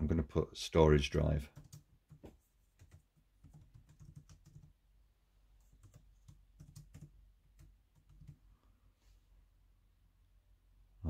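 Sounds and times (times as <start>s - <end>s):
faint laptop keyboard typing: 1.5s - 4.8s, 5.5s - 8.7s.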